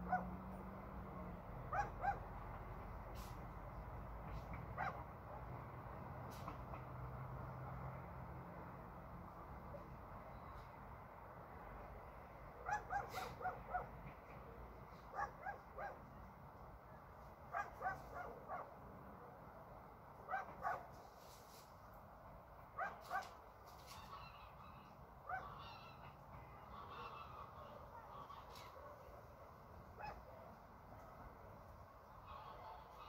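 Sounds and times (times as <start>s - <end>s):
distant animal calls: 23.8s - 28.8s.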